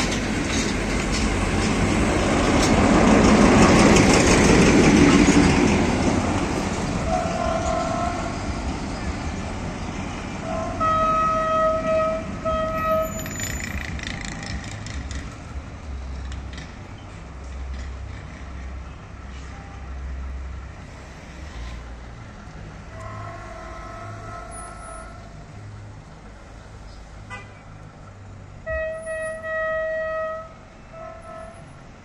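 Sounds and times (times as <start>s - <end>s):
locomotive horn: 7.0s - 9.1s, 10.0s - 14.7s, 22.8s - 25.4s, 27.3s - 27.6s, 28.6s - 31.8s.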